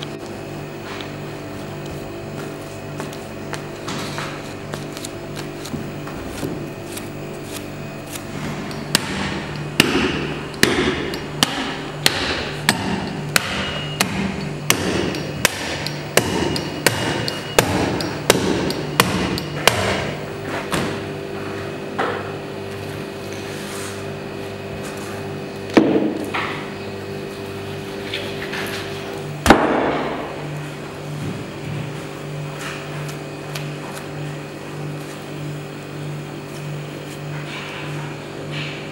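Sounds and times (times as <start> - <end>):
cleaver chopping on wooden block: 8.9 - 20.1.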